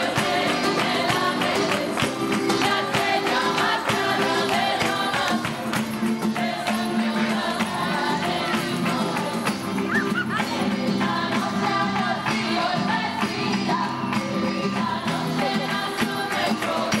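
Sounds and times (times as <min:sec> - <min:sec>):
person singing: 0:06.4 - 0:17.0.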